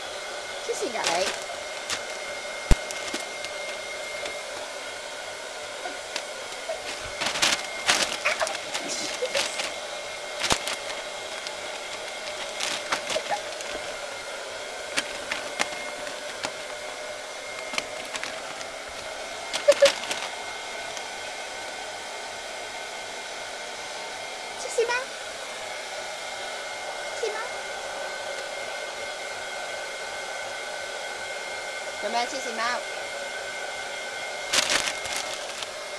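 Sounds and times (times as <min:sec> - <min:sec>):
steady machine hum: 0:00.2 - 0:21.3
plastic bag crinkling: 0:00.9 - 0:04.6, 0:06.0 - 0:20.4, 0:34.5 - 0:35.8.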